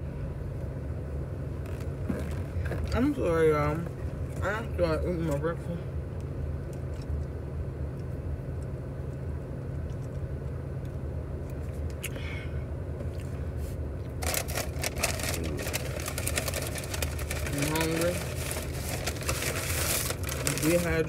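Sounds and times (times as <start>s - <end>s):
car engine idling: 0.0s - 21.0s
paper packaging rustling: 14.2s - 21.0s.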